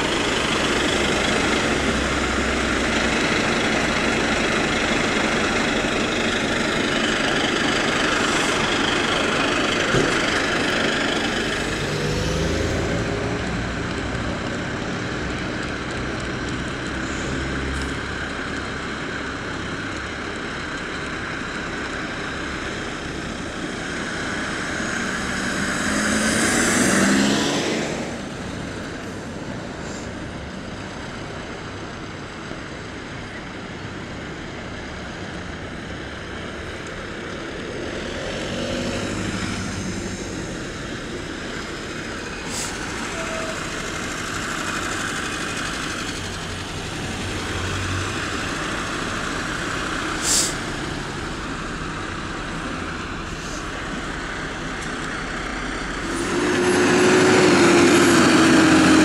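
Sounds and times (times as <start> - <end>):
diesel engines running: 0.0 - 59.0
air brake hiss: 42.4 - 43.7, 50.2 - 50.7.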